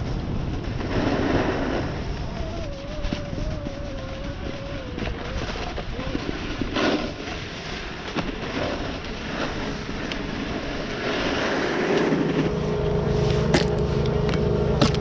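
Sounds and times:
snowboard scraping over snow: 0.0s - 15.0s
wind on microphone: 0.0s - 15.0s
steady mechanical hum: 11.1s - 15.0s.

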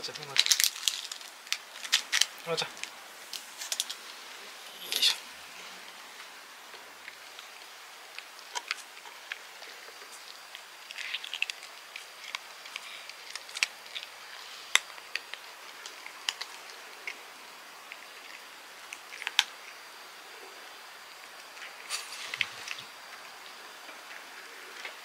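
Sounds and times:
cats crunching dry treats: 0.1s - 4.2s, 6.7s - 19.6s.

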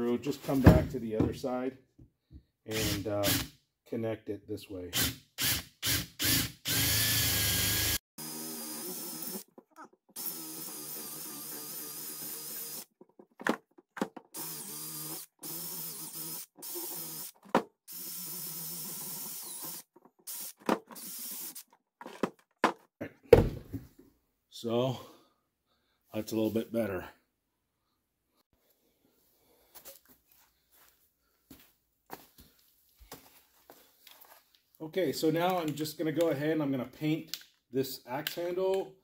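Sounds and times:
cordless drill boring into wood: 2.7s - 3.5s, 5.0s - 9.5s, 10.2s - 12.9s, 14.3s - 21.6s.

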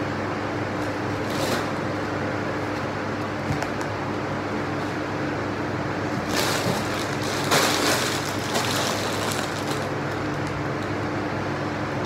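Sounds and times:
electric fan hum: 0.0s - 12.0s
plastic bags rustling: 1.2s - 1.9s, 6.1s - 10.6s.

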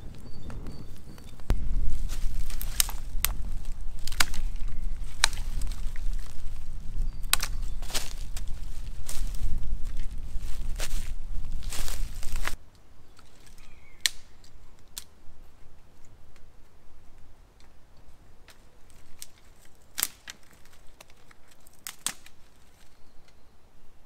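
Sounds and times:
campfire wood crackling: 0.0s - 23.4s.

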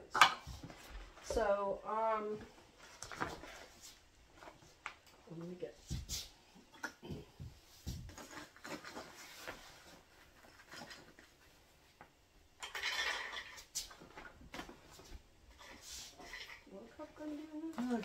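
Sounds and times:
dishes and utensils clinking: 12.6s - 13.7s.

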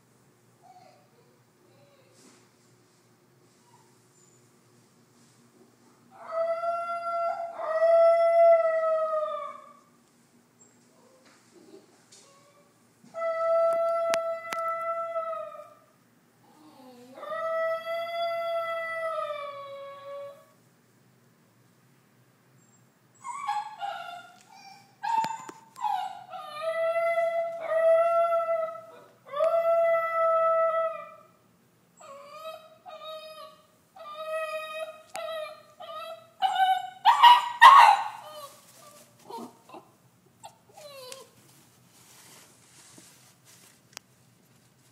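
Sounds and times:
puppy whimpering: 23.2s - 26.6s, 32.0s - 37.2s, 38.2s - 41.4s
puppy yodeling: 32.0s - 38.6s, 39.3s - 41.4s.

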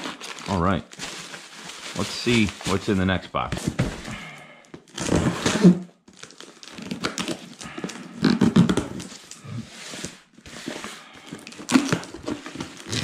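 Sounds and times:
knife slitting packing tape: 11.5s - 13.0s.

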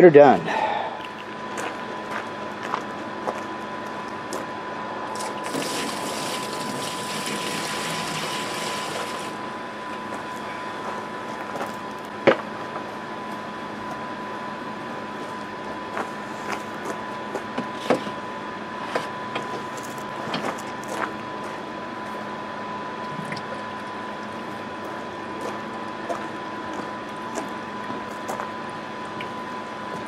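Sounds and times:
water running from garden hose: 5.2s - 9.4s.

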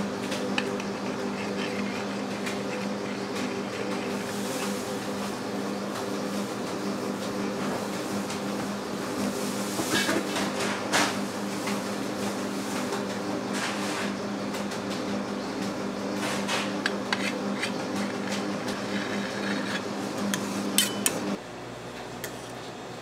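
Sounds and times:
motor hum: 0.0s - 9.2s.

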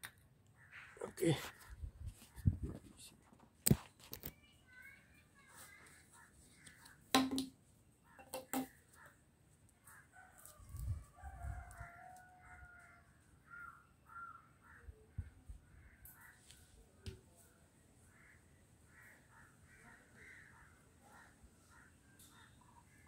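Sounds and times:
sharp knocks: 7.2s - 7.5s.

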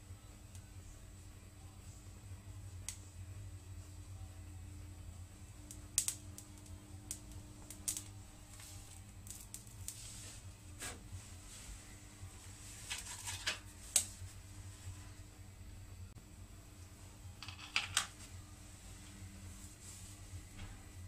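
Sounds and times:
faint steady hum: 0.0s - 21.0s
electrical clicks and crackles: 5.5s - 10.1s, 12.8s - 14.3s.

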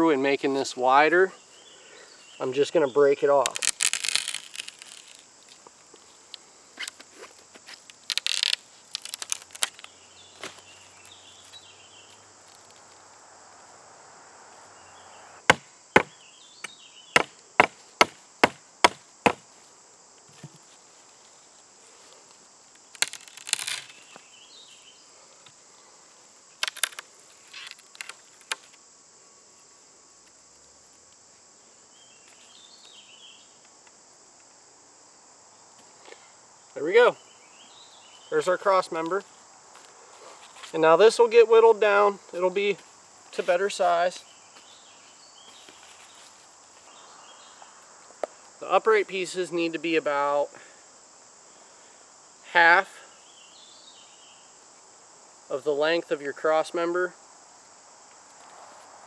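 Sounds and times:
high insect drone: 0.0s - 59.0s
hatchet chopping sapling: 3.4s - 5.3s, 15.4s - 19.5s.

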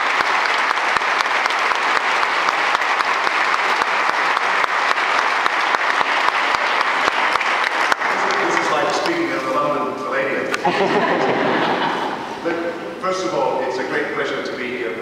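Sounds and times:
audience applause: 0.0s - 9.8s, 10.6s - 12.5s.

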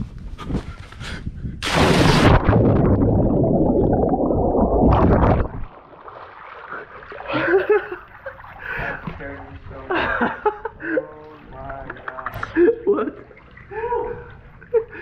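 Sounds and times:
loud splash into pool: 1.6s - 3.3s
muffled underwater bubbling: 2.2s - 9.7s
water lapping and sloshing: 4.9s - 15.0s.

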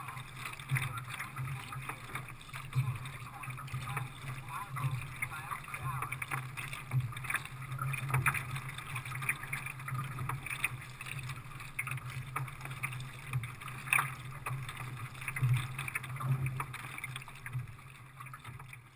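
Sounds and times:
low hum: 0.0s - 12.4s
water splashing against kayak hull: 0.0s - 18.9s.

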